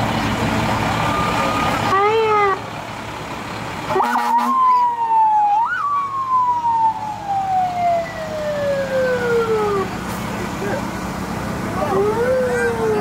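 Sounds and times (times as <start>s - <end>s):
emergency vehicle siren: 0.0s - 3.2s, 3.8s - 10.4s, 11.6s - 13.0s.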